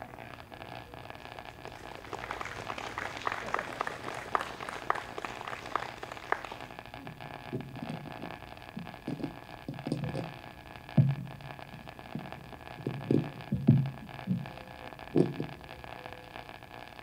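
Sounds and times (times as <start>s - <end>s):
people clapping: 0.0s - 7.0s.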